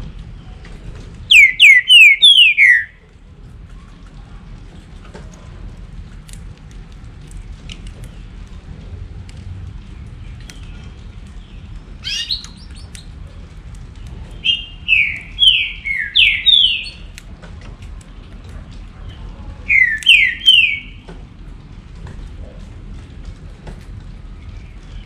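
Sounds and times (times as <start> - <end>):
bird singing whistled notes: 1.3 - 3.0, 14.4 - 17.0, 19.7 - 21.0.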